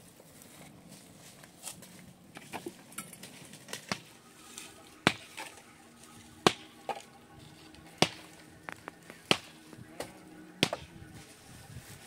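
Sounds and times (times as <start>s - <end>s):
sharp knocks: 10.6s - 10.9s.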